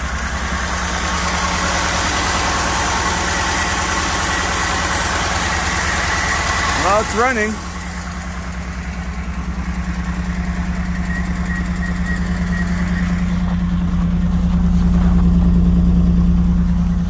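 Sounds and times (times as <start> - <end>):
car engine idling: 0.0 - 17.0
person talking: 6.8 - 7.6.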